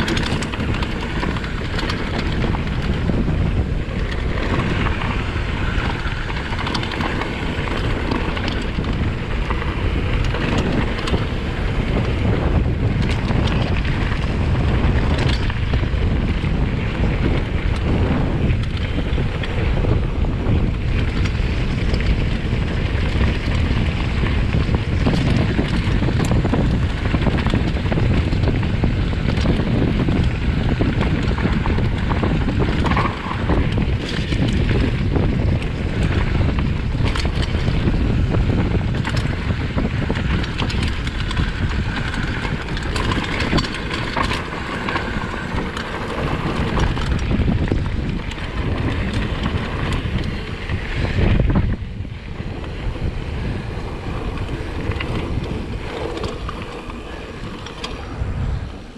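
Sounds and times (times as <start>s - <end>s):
tyres rumbling on trail: 0.0s - 58.9s
wind buffeting microphone: 0.0s - 58.9s
knocks and rattles: 20.9s - 51.8s.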